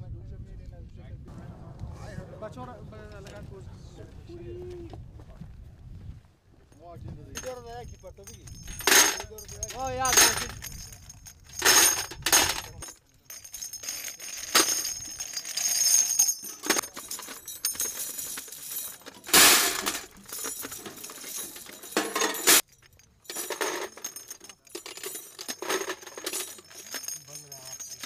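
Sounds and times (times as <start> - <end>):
brass cases and links clinking: 7.3 - 28.0.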